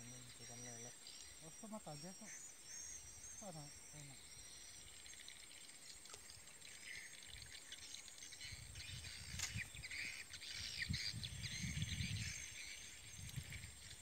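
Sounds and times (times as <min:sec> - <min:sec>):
high-pitched insect drone: 0:00.0 - 0:08.5
small birds chirping: 0:00.0 - 0:14.0
low rumbling gusts: 0:08.5 - 0:13.8.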